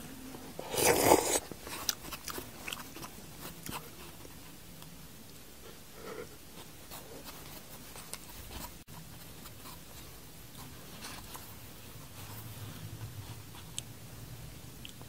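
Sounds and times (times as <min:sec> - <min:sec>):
chopsticks scraping noodles: 0:00.6 - 0:03.9.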